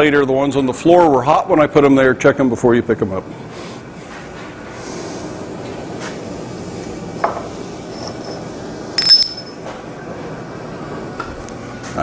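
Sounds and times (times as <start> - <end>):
steady background noise: 0.0 - 12.0
metallic clang ringing: 9.0 - 9.7.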